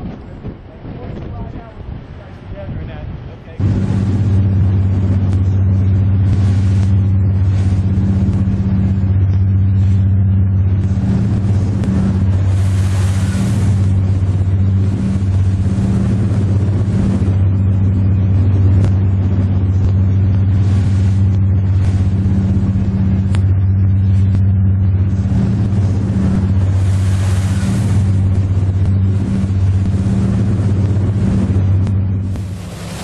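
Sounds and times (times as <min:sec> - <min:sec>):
boat engines droning: 0:00.0 - 0:33.0
rushing wind and spray: 0:00.0 - 0:33.0.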